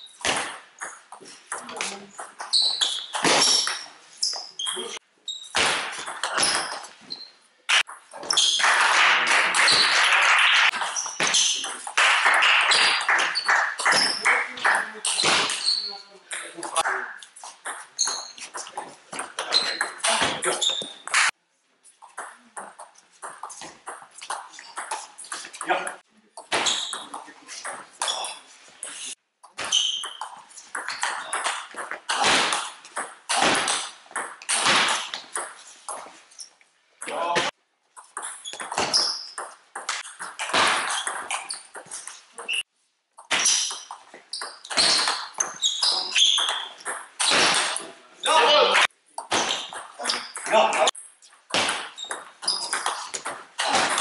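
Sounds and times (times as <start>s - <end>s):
short high squeaks: 2.4s - 7.4s, 15.1s - 16.1s, 18.0s - 18.6s, 26.6s - 31.4s, 43.4s - 47.4s.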